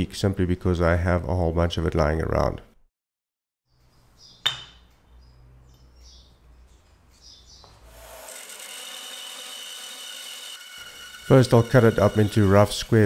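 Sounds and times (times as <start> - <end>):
sharp metallic clink: 4.4 - 4.9.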